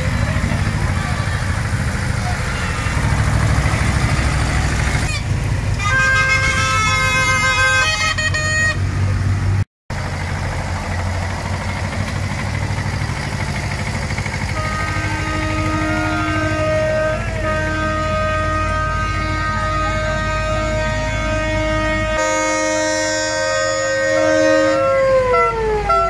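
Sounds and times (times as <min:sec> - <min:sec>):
tractor engines running: 0:00.0 - 0:26.0
tooting horn-like tune: 0:02.2 - 0:08.8, 0:14.3 - 0:26.0.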